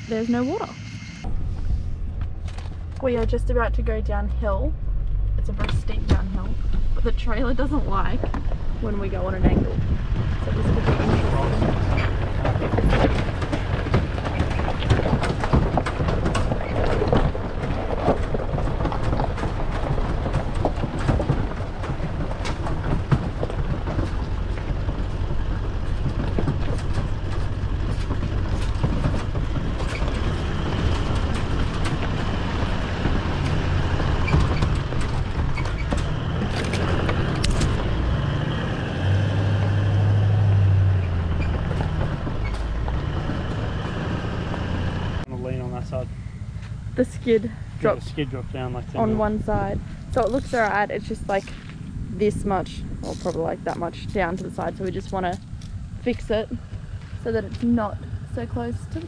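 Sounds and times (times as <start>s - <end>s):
vehicle engine running low: 0.0s - 59.0s
rocks knocking and rattling: 8.0s - 45.2s.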